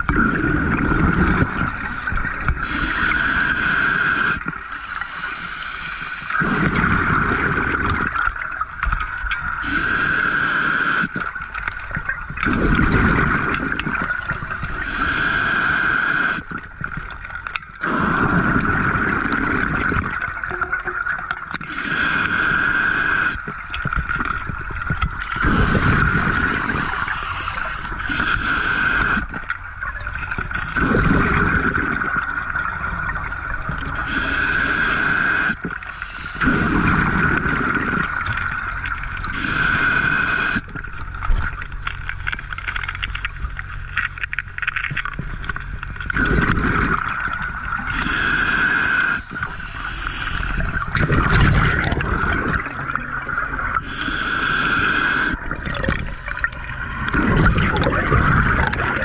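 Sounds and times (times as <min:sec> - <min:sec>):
exhaled bubbles gurgling: 0:00.0 - 0:59.0
diver breathing through regulator: 0:00.6 - 0:07.7, 0:09.6 - 0:11.3, 0:12.5 - 0:16.6, 0:21.6 - 0:23.5, 0:25.2 - 0:29.4, 0:33.8 - 0:40.8, 0:46.2 - 0:52.7, 0:53.7 - 0:58.0.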